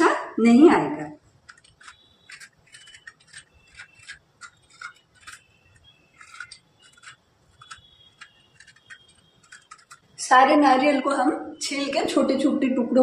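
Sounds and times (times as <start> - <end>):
peeler scraping coconut: 1.4 - 10.3.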